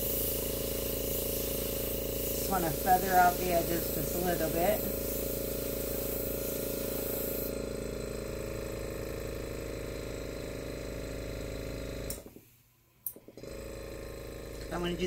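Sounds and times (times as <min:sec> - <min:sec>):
airbrush hissing air: 0:00.0 - 0:07.7
compressor motor humming: 0:00.0 - 0:12.4, 0:13.0 - 0:15.0.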